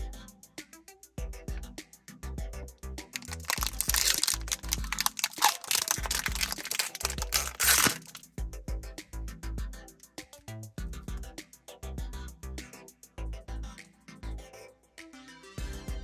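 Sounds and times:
background music: 0:00.0 - 0:16.0
plastic wrapper crinkling and tearing: 0:03.2 - 0:08.2.

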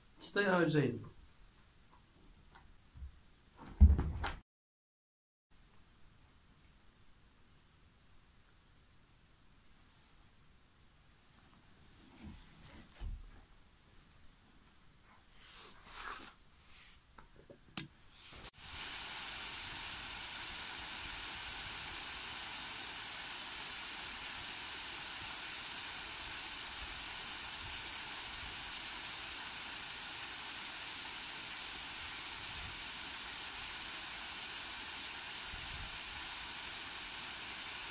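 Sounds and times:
water rushing down waterfall: 0:18.5 - 0:37.9.

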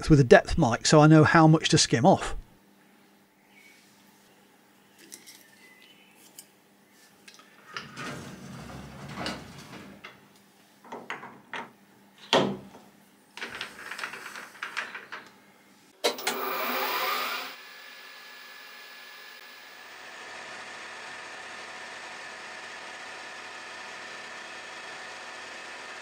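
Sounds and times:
lathe chuck whine: 0:16.0 - 0:26.0
lathe running hum: 0:16.1 - 0:26.0.

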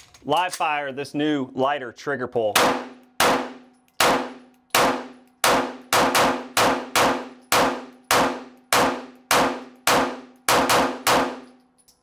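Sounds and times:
pistol shots: 0:02.6 - 0:11.6.

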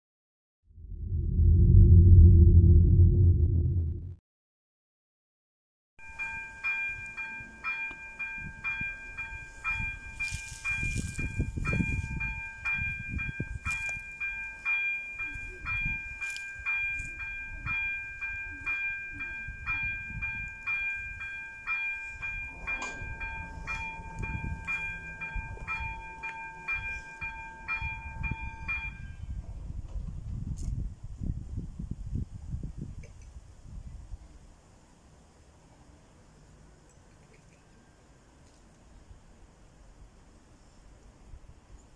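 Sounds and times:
low background rumble: 0:00.7 - 0:04.2
electric warning bell ringing: 0:06.0 - 0:29.2.

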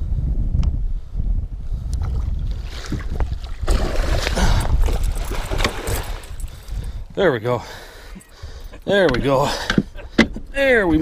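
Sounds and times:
wind on microphone: 0:00.0 - 0:11.0
fish thrashing and splashing: 0:02.2 - 0:06.8.

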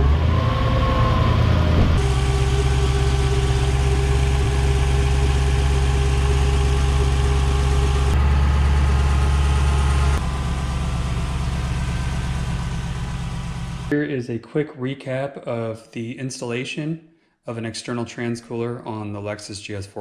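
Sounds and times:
car engine idling: 0:01.4 - 0:13.9.

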